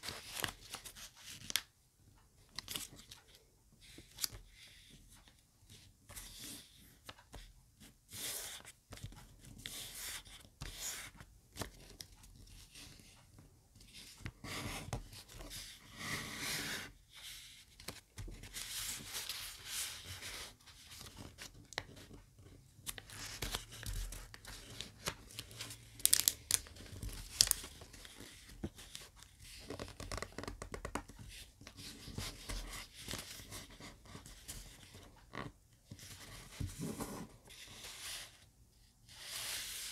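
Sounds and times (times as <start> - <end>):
paper rustling and crinkling: 22.8 - 31.1.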